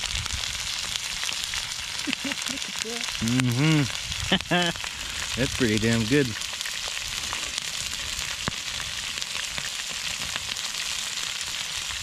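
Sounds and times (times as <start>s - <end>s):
meat sizzling in skillet: 0.0s - 12.0s.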